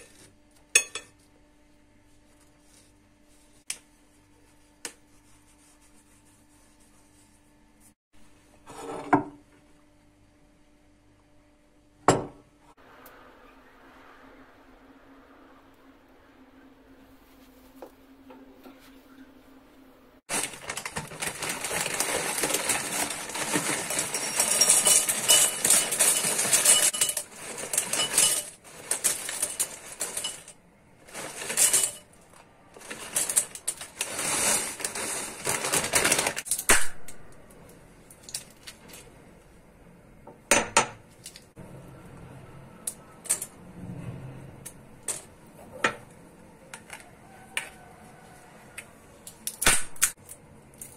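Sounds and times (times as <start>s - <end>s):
plastic packet crinkling: 20.3s - 30.4s, 31.0s - 36.5s.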